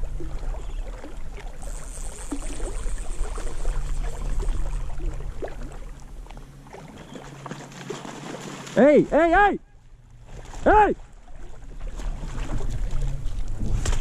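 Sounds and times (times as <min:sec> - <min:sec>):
water lapping: 0:00.0 - 0:14.0
wind rumble on microphone: 0:11.4 - 0:14.0.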